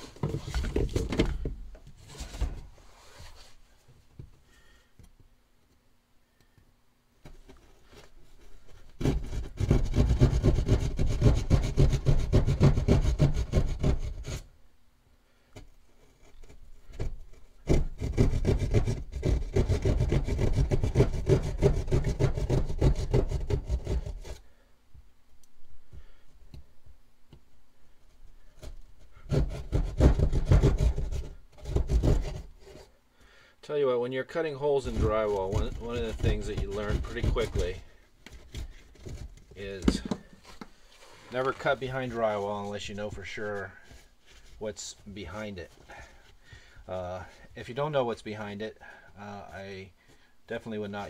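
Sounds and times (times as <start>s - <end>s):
hand saw cutting drywall: 8.8s - 14.5s, 16.0s - 24.6s, 28.4s - 32.9s, 34.4s - 40.6s, 41.3s - 47.9s
quiet scraping: 33.7s - 51.0s.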